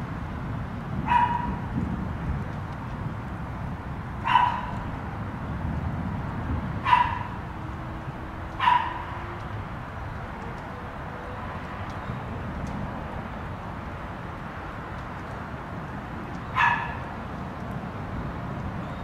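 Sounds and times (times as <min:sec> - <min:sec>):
dog barking: 0:01.1 - 0:01.6, 0:04.2 - 0:04.8, 0:06.8 - 0:07.4, 0:08.6 - 0:09.2, 0:16.6 - 0:17.0.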